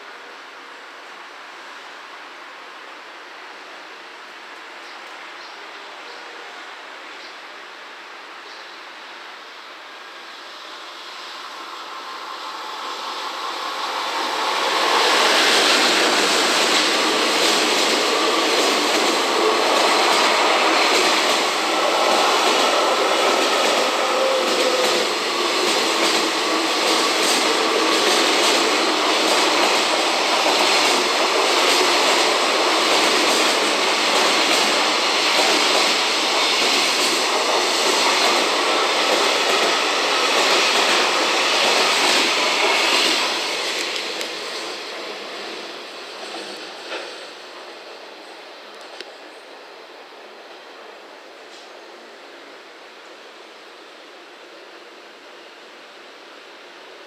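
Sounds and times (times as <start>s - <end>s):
steel wheels rumbling on rail: 9.9s - 49.6s.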